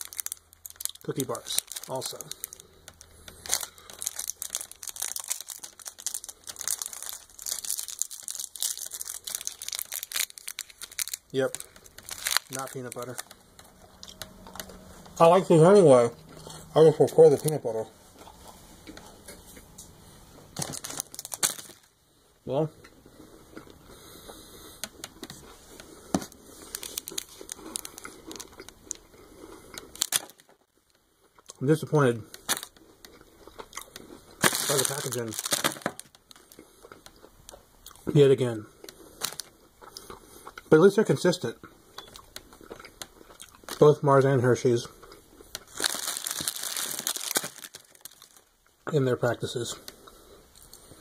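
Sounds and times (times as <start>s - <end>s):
candy wrapper crinkling: 0.0s - 14.8s, 17.2s - 17.8s, 20.6s - 22.0s, 26.2s - 30.6s, 31.9s - 32.8s, 33.5s - 39.5s, 42.2s - 44.8s, 45.5s - 48.7s.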